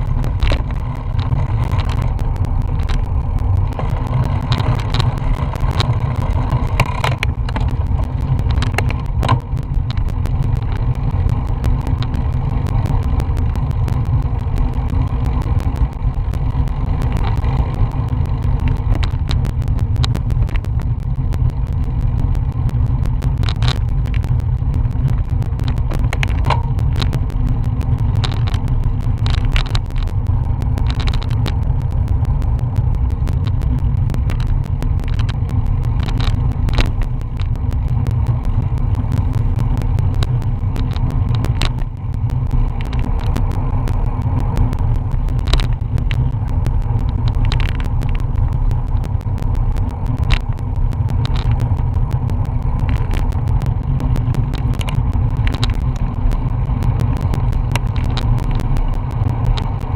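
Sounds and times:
sharp clicks and knocks: 0:00.0 - 0:59.9
tyre and road noise: 0:00.0 - 0:59.9.

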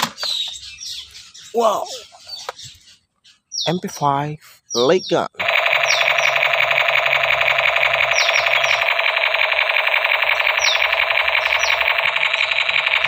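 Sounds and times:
birds chirping: 0:00.0 - 0:13.0
toy gun electronic rattle: 0:05.4 - 0:13.0.

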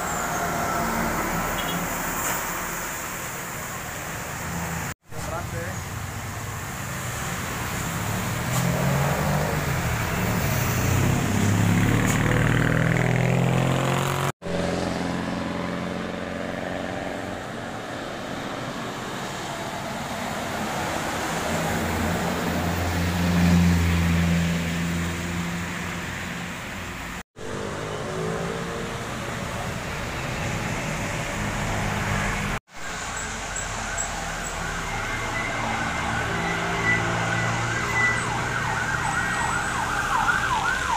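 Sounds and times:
tyres hissing on wet asphalt: 0:00.0 - 0:11.5, 0:29.0 - 0:35.4
car and truck engines: 0:00.0 - 0:40.9
heavy truck passing close: 0:00.0 - 0:40.9.

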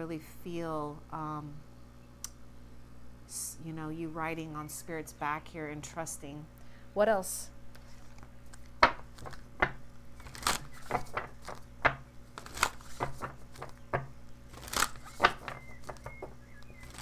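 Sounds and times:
cards being shuffled: 0:07.7 - 0:17.0.

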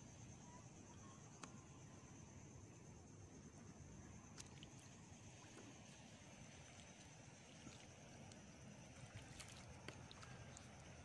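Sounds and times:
faint ticks: 0:01.2 - 0:01.8.

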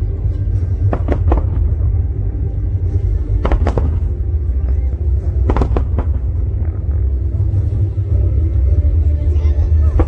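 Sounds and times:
festival music with low rumble: 0:00.0 - 0:10.0
fireworks bangs: 0:00.8 - 0:02.0, 0:03.4 - 0:04.4, 0:05.4 - 0:06.9.

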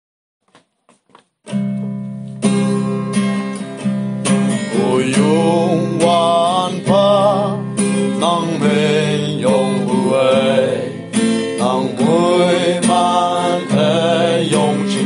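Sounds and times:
acoustic guitar strumming: 0:01.4 - 0:15.0
person singing: 0:04.6 - 0:15.0.

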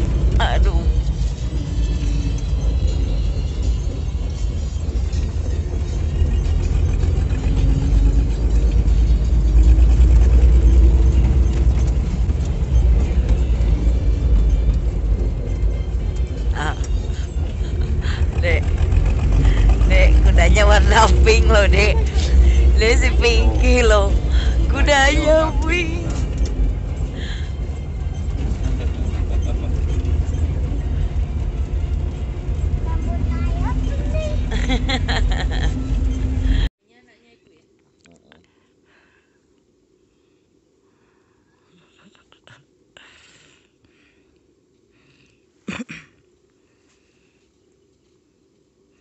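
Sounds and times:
body and tyres rumbling: 0:00.0 - 0:36.7
faint rattles: 0:00.0 - 0:36.7
jeep engine running: 0:00.0 - 0:36.7.

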